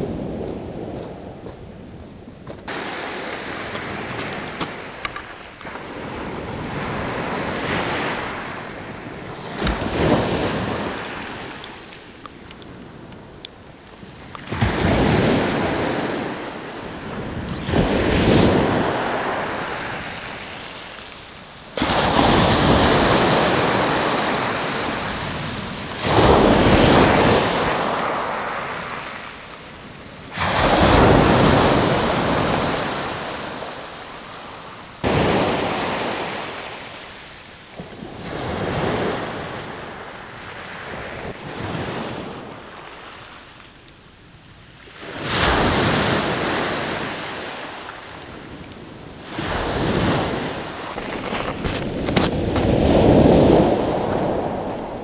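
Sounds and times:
waves breaking on pebbles: 0:02.7 - 0:12.2, 0:14.0 - 0:39.9, 0:49.2 - 0:55.0.

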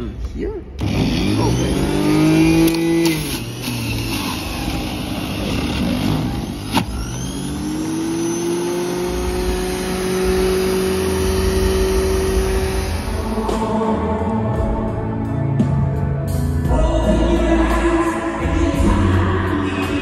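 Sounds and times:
juicer motor running: 0:00.8 - 0:13.3.

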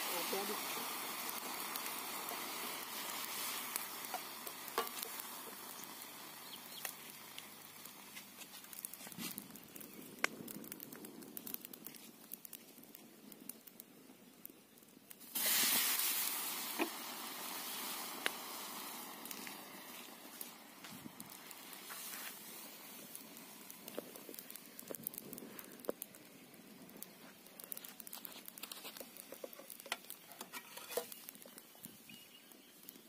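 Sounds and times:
sudden loud hiss: 0:00.0 - 0:07.7, 0:15.2 - 0:25.8
burning sticks crackling and popping: 0:00.0 - 0:33.0
soap and water sizzling in a wok: 0:00.0 - 0:33.0.

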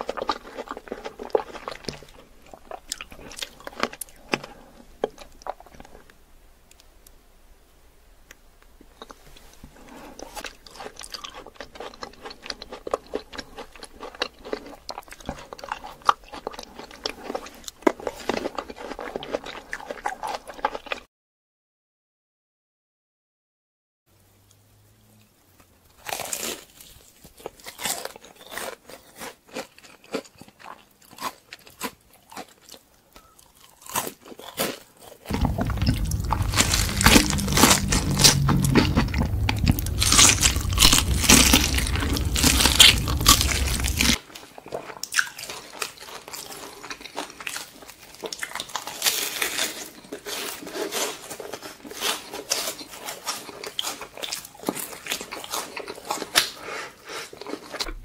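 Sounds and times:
crunching and chewing fried chicken: 0:00.0 - 0:06.9, 0:08.8 - 0:21.1, 0:25.2 - 0:58.0
low hum: 0:35.3 - 0:44.2.

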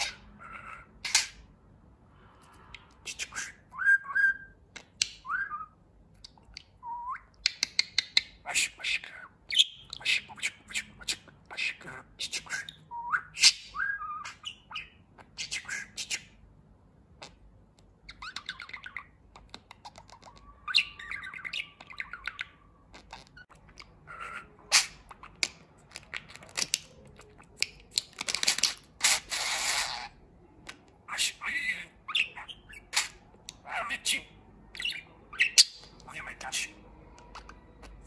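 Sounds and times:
budgerigar chattering: 0:00.0 - 0:01.4, 0:18.1 - 0:27.9, 0:31.1 - 0:38.0.

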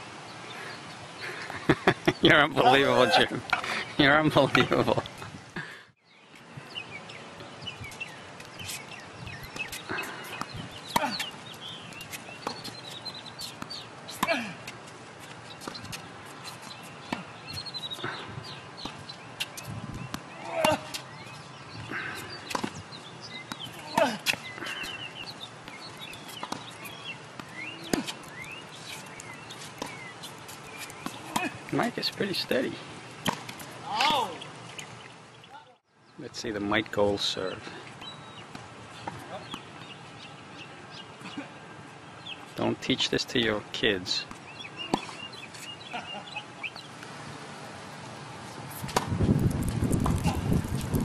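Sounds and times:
birds chirping: 0:00.0 - 0:51.0
tennis ball struck by racquet: 0:09.5 - 0:11.4, 0:21.8 - 0:22.8, 0:26.4 - 0:28.3, 0:33.2 - 0:34.2, 0:48.8 - 0:49.3
racket hitting tennis ball: 0:09.5 - 0:12.8, 0:18.4 - 0:21.1, 0:21.8 - 0:31.7, 0:33.2 - 0:34.3, 0:48.7 - 0:49.3.

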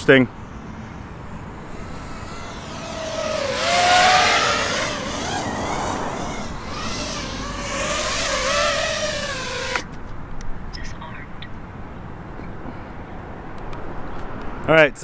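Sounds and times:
quadcopter motors whining: 0:01.1 - 0:09.9.

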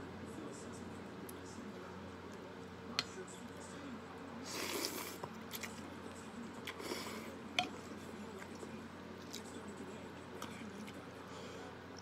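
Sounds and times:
person slurping and chewing: 0:04.4 - 0:05.8.

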